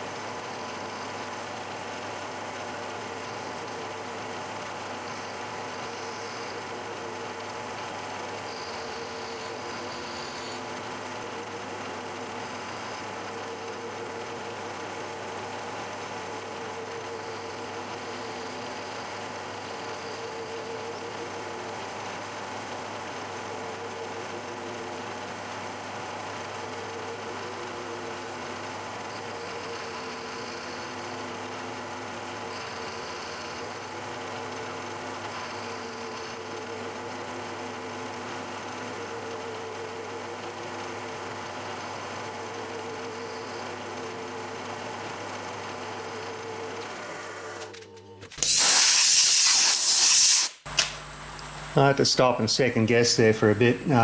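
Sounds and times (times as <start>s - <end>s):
milling machine cutting metal: 0.0s - 54.0s
compressed air hiss: 48.4s - 50.6s.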